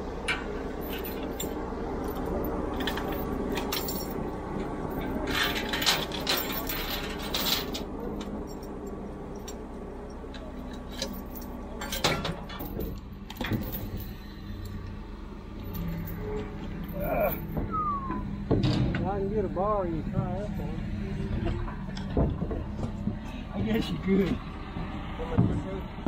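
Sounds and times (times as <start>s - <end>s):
loader engine running: 0.0s - 26.0s
chain and metal clinking: 0.3s - 17.6s.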